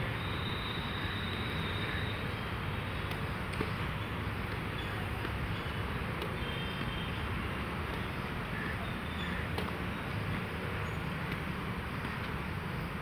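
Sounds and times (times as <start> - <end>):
rackets striking shuttlecock: 2.9 - 8.4, 9.3 - 10.5, 11.2 - 12.4.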